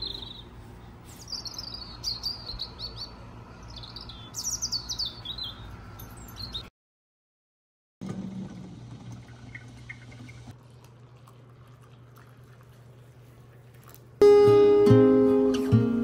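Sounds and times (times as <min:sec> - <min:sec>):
coffee pouring into a mug: 0:10.5 - 0:14.0.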